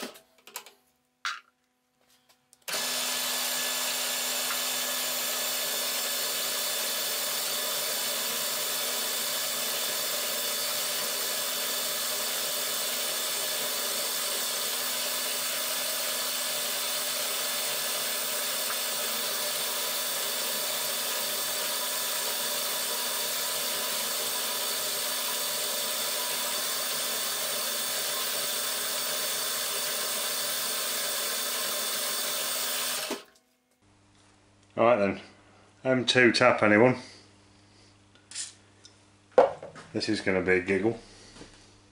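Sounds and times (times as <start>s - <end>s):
drill boring into metal: 2.7s - 33.3s.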